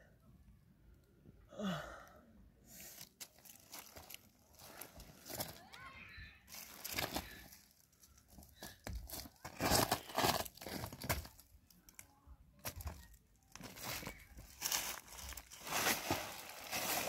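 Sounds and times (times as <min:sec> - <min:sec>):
footsteps on gravel and dry leaves: 0:06.5 - 0:08.4, 0:09.1 - 0:11.3, 0:12.6 - 0:17.0.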